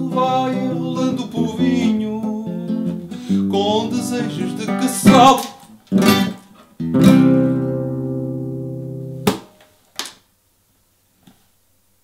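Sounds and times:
acoustic guitar chord ringing: 0:00.0 - 0:09.4.

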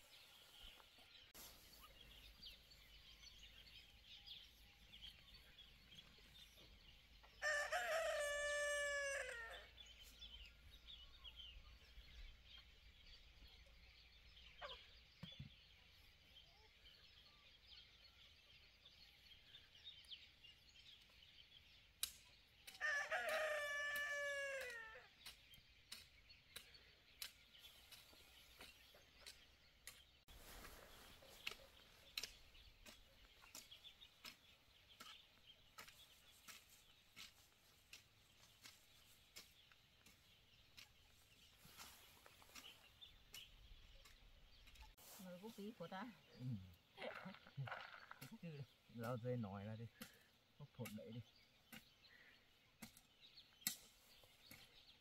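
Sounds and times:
rooster crowing: 0:07.4 - 0:09.7, 0:22.8 - 0:25.1.

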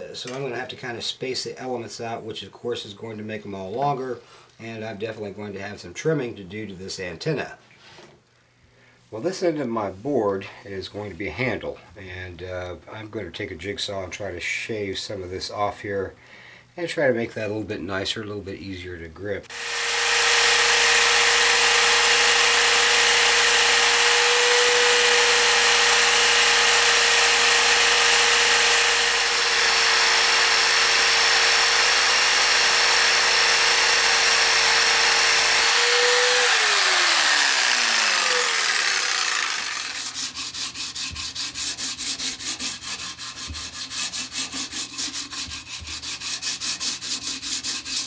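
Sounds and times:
electric jigsaw cutting wood: 0:19.5 - 0:40.4
sandpaper rubbing wood by hand: 0:39.7 - 0:48.0.

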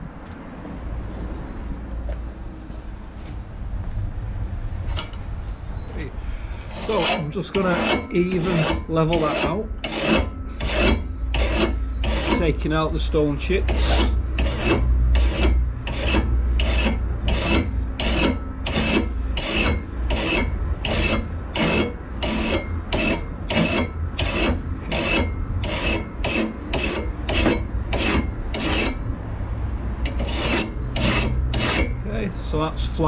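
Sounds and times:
file rasping on metal blade: 0:06.6 - 0:12.6, 0:13.6 - 0:29.0, 0:30.0 - 0:32.0.

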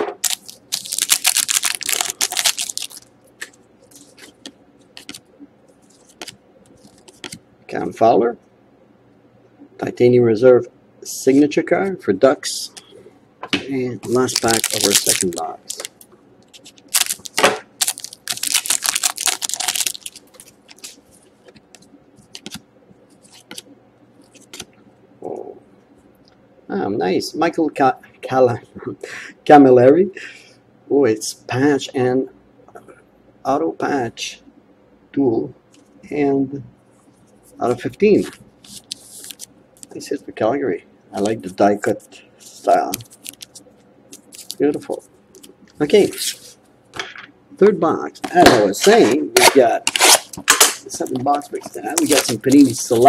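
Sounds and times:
scissors cutting foil wrapper: 0:00.2 - 0:03.0, 0:14.1 - 0:15.9, 0:16.8 - 0:20.8, 0:49.4 - 0:53.0
foil wrapper crinkling: 0:00.2 - 0:05.2, 0:14.0 - 0:21.0, 0:38.2 - 0:40.0, 0:42.5 - 0:45.0, 0:49.4 - 0:53.0.

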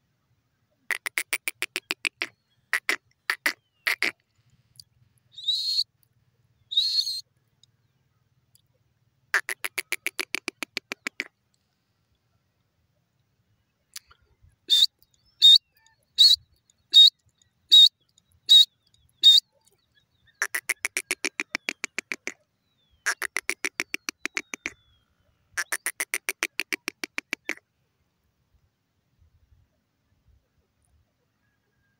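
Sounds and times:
francolin calling: 0:04.8 - 0:05.9, 0:06.6 - 0:07.3, 0:14.0 - 0:27.6.

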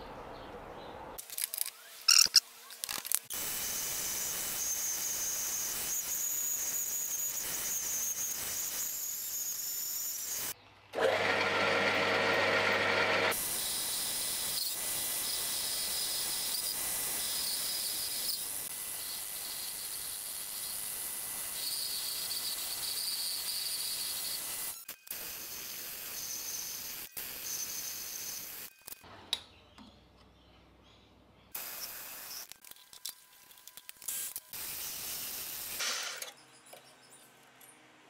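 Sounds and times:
metal lathe cutting steel: 0:11.0 - 0:24.5.

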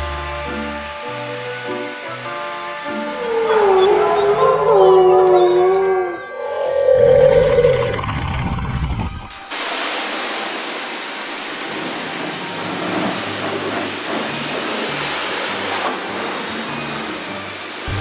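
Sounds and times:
rushing hiss: 0:00.0 - 0:04.7, 0:09.2 - 0:18.0.

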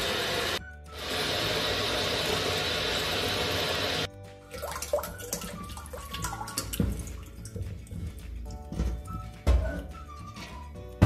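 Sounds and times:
tap water running into a pot: 0:00.0 - 0:08.2
background music: 0:00.0 - 0:11.0
water splashing and trickling: 0:04.0 - 0:09.2.

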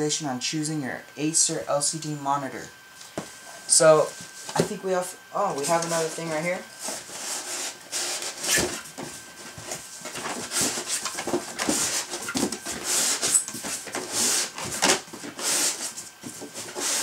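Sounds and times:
rustling and scraping of cardboard: 0:05.6 - 0:17.0.

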